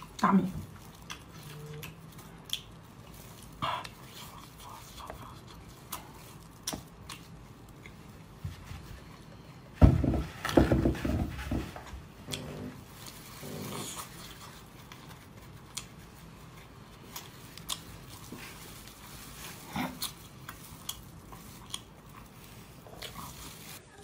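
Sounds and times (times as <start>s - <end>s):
wet mouth clicks and smacks: 1.0s - 2.7s
person chewing and slurping: 12.3s - 23.8s.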